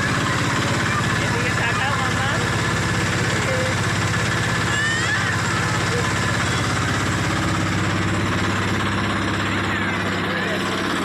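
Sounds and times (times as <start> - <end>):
boat engine droning: 0.0 - 11.0.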